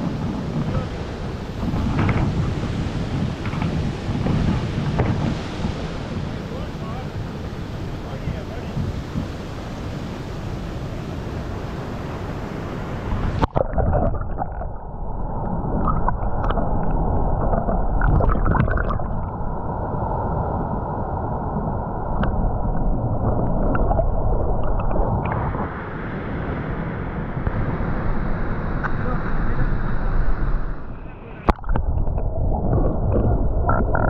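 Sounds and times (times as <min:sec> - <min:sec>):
muffled underwater gurgling: 0:13.4 - 0:19.6, 0:22.0 - 0:25.6, 0:30.8 - 0:34.0.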